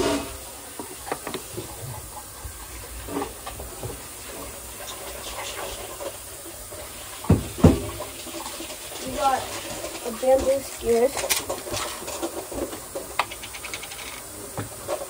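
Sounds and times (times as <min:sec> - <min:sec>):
tap water running into bowl: 0:00.0 - 0:15.0.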